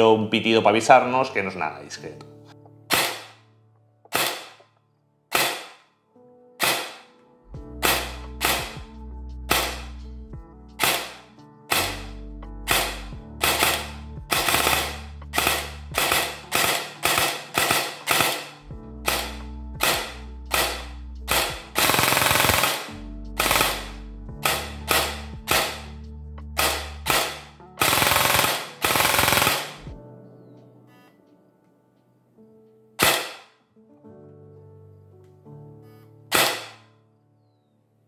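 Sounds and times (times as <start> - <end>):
airsoft rifle single shots: 2.9 - 3.4, 4.1 - 4.6, 5.3 - 5.9, 6.6 - 7.1, 9.5 - 10.0, 10.8 - 25.9, 33.0 - 33.5, 36.3 - 36.8
airsoft rifle full-auto burst: 7.8 - 8.8, 10.8 - 12.1, 12.7 - 25.9, 26.6 - 29.9, 33.0 - 33.4, 36.3 - 36.8.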